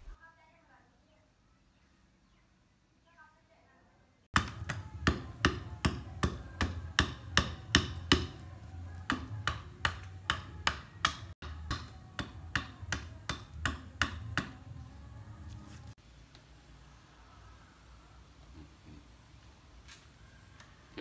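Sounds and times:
hatchet chopping wood: 0:04.3 - 0:14.8.

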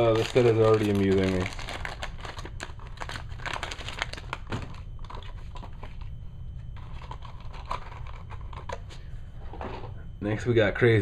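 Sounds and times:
plastic packaging crinkling: 0:00.0 - 0:06.2, 0:06.8 - 0:08.8.

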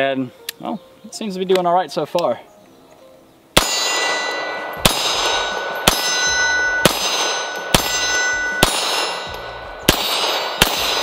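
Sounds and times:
pistol shots: 0:03.6 - 0:11.0
steel targets ringing: 0:03.6 - 0:11.0.

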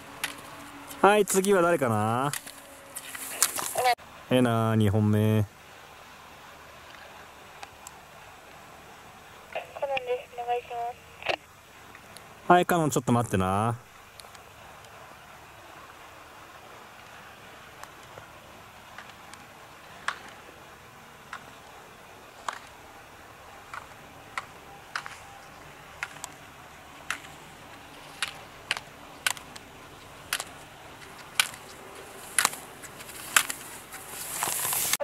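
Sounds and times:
gate poles clacking: 0:00.0 - 0:03.8, 0:23.6 - 0:34.9
skis scraping on snow: 0:00.0 - 0:04.0, 0:27.0 - 0:35.0.

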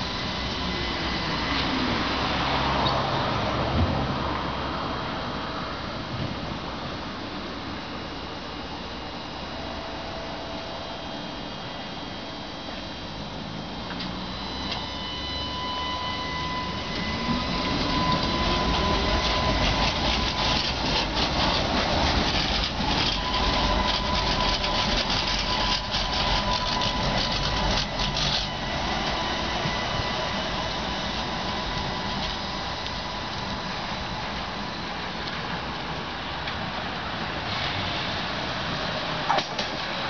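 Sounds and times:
tram motors whining: 0:00.0 - 0:40.0
wheels clattering on rails: 0:16.8 - 0:40.0.

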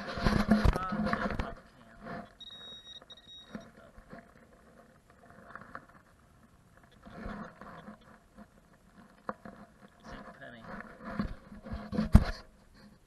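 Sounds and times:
loose dirt rustling: 0:00.0 - 0:13.0
metal detector beep: 0:02.4 - 0:03.7.

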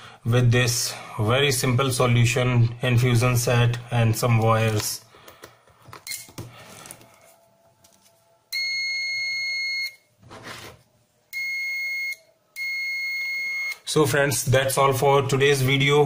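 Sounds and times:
multimeter continuity beep: 0:08.6 - 0:10.0, 0:11.3 - 0:13.8.

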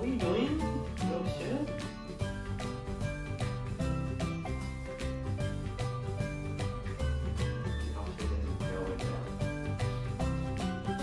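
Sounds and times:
music with bass and beat: 0:00.0 - 0:11.0.

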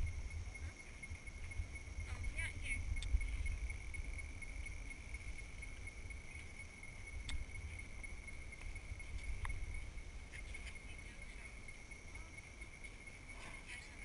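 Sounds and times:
low rumble on microphone: 0:00.0 - 0:12.0
high-pitched insect drone: 0:00.0 - 0:14.0
faint clicks: 0:03.0 - 0:03.2, 0:07.2 - 0:07.5.

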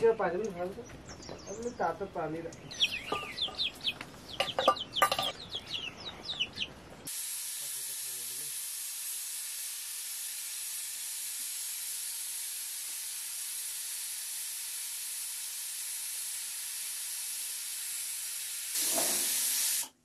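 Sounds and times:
steam hissing from pot: 0:07.1 - 0:20.0.

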